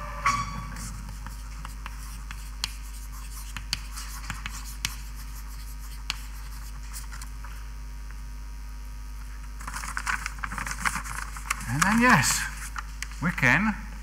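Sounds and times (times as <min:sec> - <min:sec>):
low mains hum: 0:00.0 - 0:14.0
writing taps and scratches: 0:00.8 - 0:07.3.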